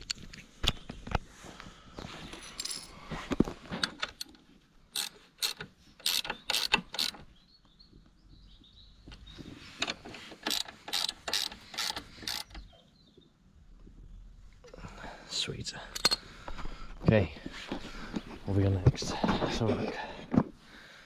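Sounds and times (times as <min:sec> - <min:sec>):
socket ratchet wrench clicking: 0:04.9 - 0:07.2, 0:10.4 - 0:12.6.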